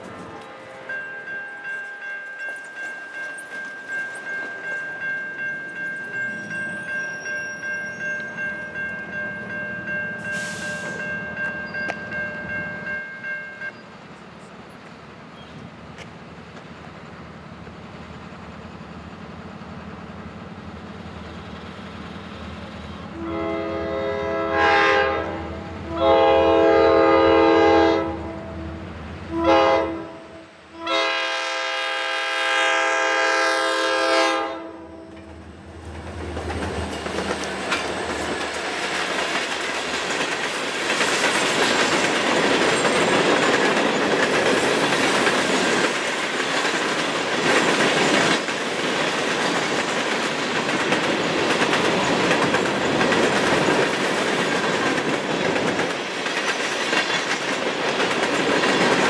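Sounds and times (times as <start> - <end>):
crossing bell ringing: 0.0 - 14.0
diesel train rumble: 0.0 - 59.0
locomotive horn blasts: 0.4 - 2.1, 23.1 - 35.1.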